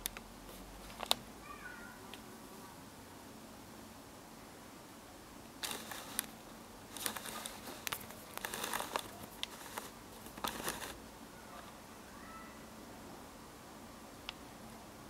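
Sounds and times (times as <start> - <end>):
crinkly rustling and crackling: 0.0 - 1.3, 5.6 - 11.8
faint room hiss: 0.0 - 15.0.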